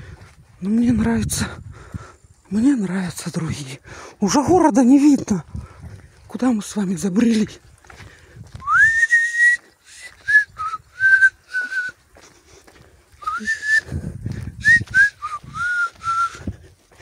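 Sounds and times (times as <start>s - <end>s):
person whistling a tune: 8.6s - 12.0s, 13.2s - 14.0s, 14.6s - 16.4s.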